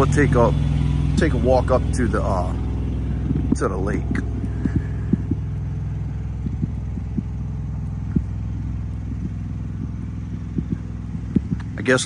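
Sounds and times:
engine humming: 0.0s - 12.0s
footsteps on asphalt: 2.6s - 12.0s.

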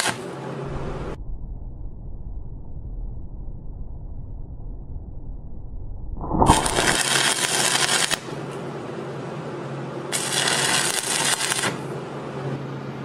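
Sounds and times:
crackling hissing welding arc: 0.0s - 0.4s, 6.4s - 8.7s, 10.0s - 12.0s
electrode scratching on plate: 6.5s - 8.2s, 10.1s - 11.8s.

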